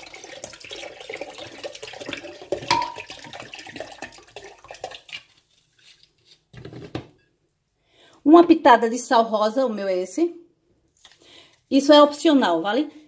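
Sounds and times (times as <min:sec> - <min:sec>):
water pouring into metal bowl: 0:00.0 - 0:06.0.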